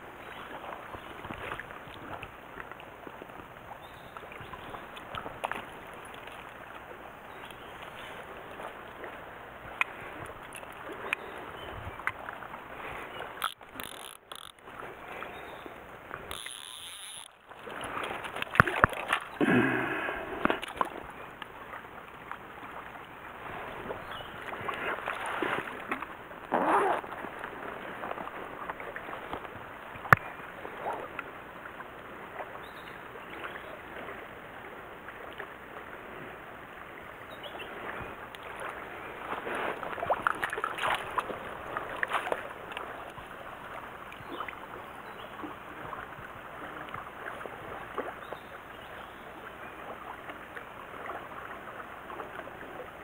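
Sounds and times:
stream water running and splashing: 0.0 - 53.0
sharp clicks: 13.4 - 14.6.

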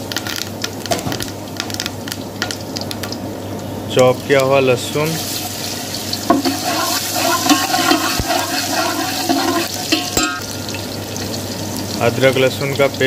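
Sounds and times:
garlic sizzling in hot oil: 0.0 - 13.0
ladle knocking against pot: 9.3 - 10.5.

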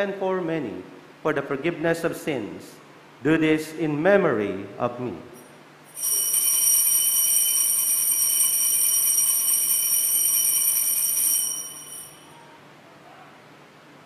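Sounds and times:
altar bells ringing: 5.4 - 12.6.

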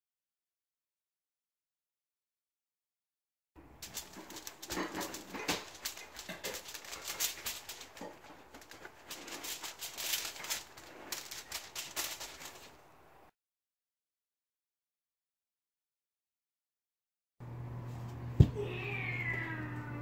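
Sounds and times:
aluminium foil crinkling: 3.8 - 12.9
paper towels rustling: 3.8 - 12.9.

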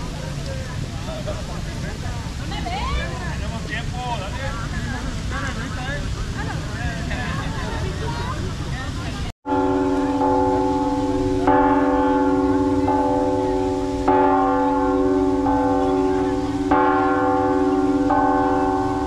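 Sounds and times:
church bells ringing: 9.5 - 19.0.

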